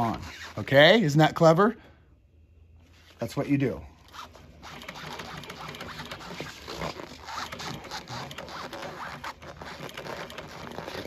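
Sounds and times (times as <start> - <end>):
sewing machine stitching: 4.2 - 11.0.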